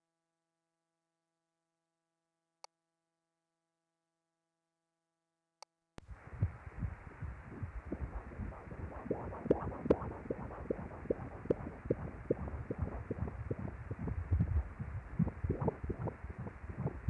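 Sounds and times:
doppler heartbeat whooshing pulses: 6.1s - 17.0s
low rumbles: 6.1s - 17.0s.

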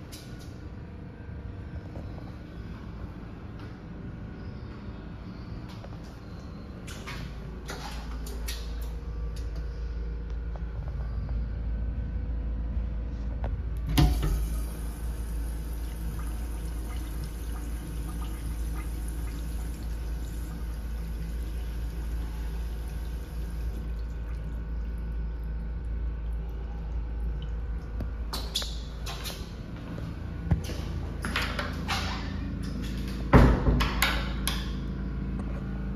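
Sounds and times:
water rushing into urinal bowl: 13.9s - 26.5s.

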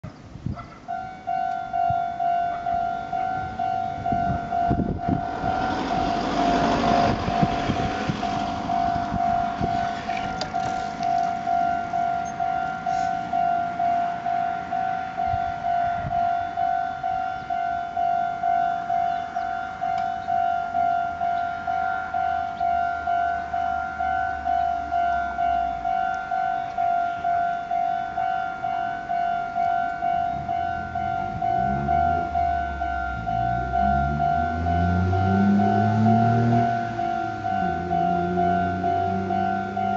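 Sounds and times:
railroad crossing warning bell: 0.6s - 39.9s
electric train motors whining: 2.7s - 15.7s, 17.7s - 39.9s.

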